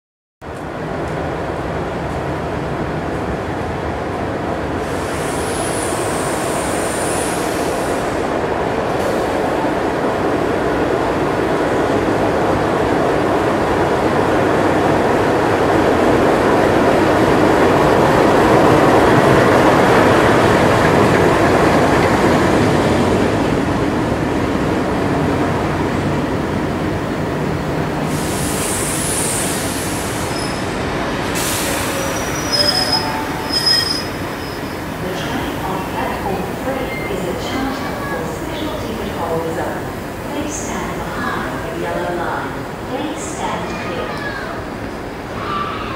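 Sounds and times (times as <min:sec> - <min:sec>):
diesel locomotive engine rumbling: 0:00.5 - 0:45.9
high wheel squeal: 0:30.3 - 0:30.7, 0:31.6 - 0:34.8.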